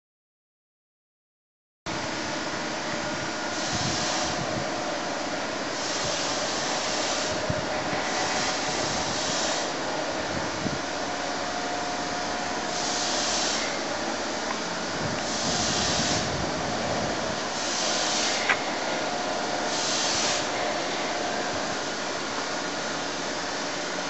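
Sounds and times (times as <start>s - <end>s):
rushing workshop noise: 2.0s - 24.0s
short surges of hiss: 3.5s - 4.6s, 5.7s - 10.0s, 12.7s - 14.0s, 15.2s - 23.0s.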